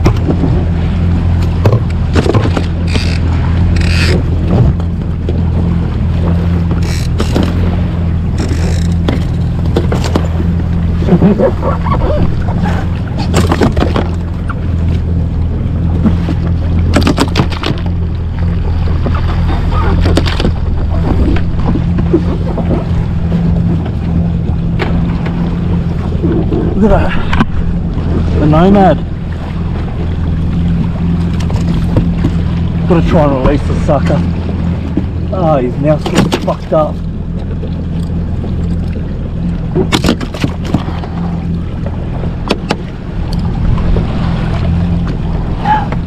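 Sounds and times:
jet ski engine drone: 0.0 - 46.0
water splashing against hull: 0.0 - 46.0.

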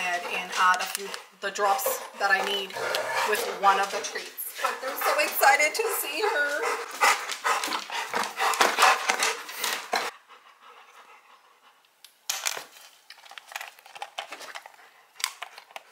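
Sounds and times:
dog panting: 0.0 - 11.9
dog chewing crunchy treat: 13.0 - 15.9.

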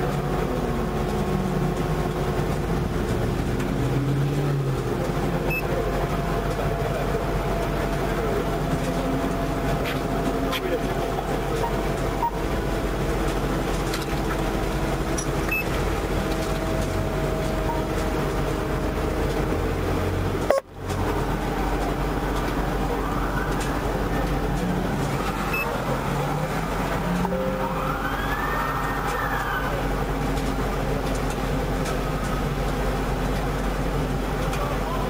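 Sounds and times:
traffic passing on road: 0.0 - 35.0
faint siren wailing: 25.0 - 30.4.

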